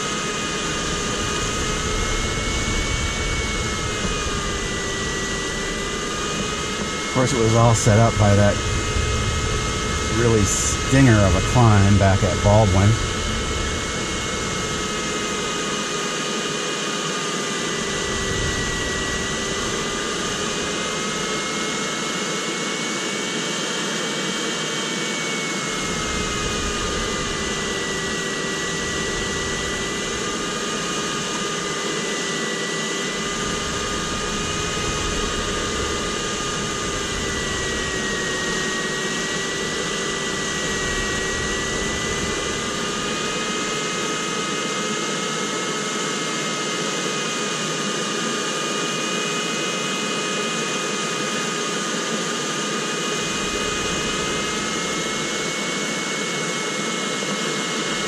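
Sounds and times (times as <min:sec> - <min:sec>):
wavering continuous tone: 0:00.0 - 0:16.4, 0:17.6 - 0:22.2, 0:25.6 - 0:32.2, 0:33.0 - 0:44.5
air rushing around cockpit: 0:00.0 - 0:47.4, 0:51.3 - 0:58.0
low buffeting: 0:00.2 - 0:16.2, 0:25.7 - 0:31.9, 0:33.1 - 0:44.0.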